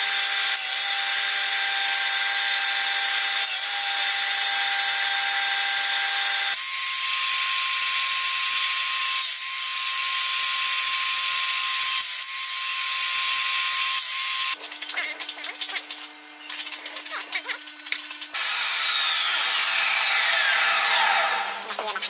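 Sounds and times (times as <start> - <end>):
table saw whining: 18.2 - 21.8.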